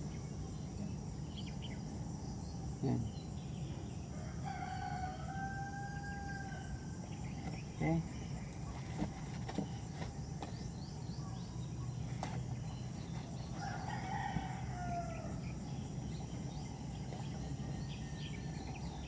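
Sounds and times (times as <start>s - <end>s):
rooster crowing: 4.1s - 7.0s, 13.6s - 15.7s.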